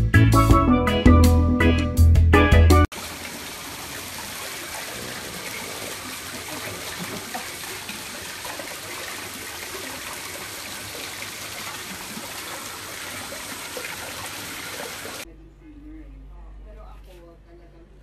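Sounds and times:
small water splashes: 0:02.9 - 0:15.2
water running into a tiled basin: 0:02.9 - 0:15.2.

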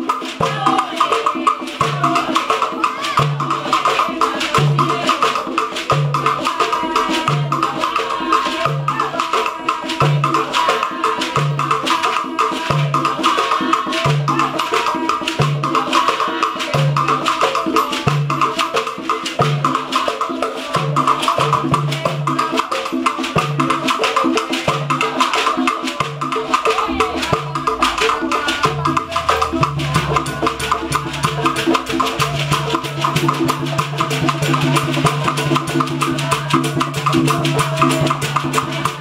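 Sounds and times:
hand drums: 0:00.0 - 0:39.0
deep drum note: 0:26.4 - 0:33.7.

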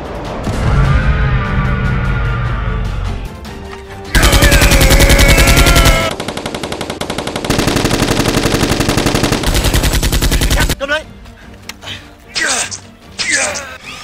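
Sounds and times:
rapid automatic gunfire: 0:04.2 - 0:10.8.

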